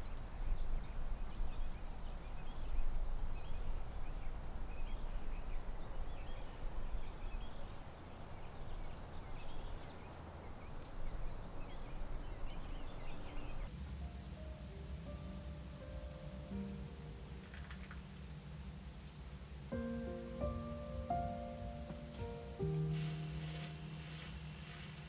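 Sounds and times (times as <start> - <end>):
birds chirping: 0.0 - 13.7, 19.2 - 25.0
steady low rumble: 0.0 - 17.4.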